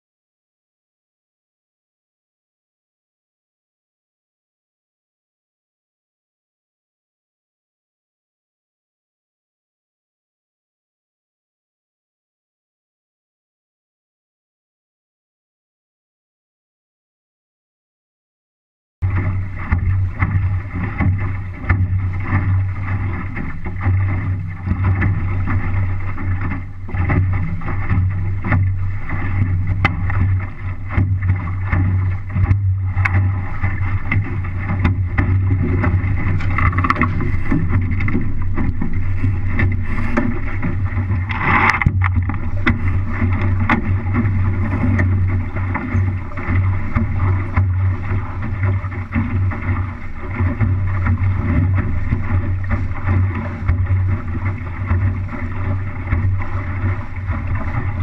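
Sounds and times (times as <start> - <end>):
water rushing along a hull: 19.0 - 58.0
water splash: 19.0 - 58.0
wind buffeting microphone: 19.0 - 58.0.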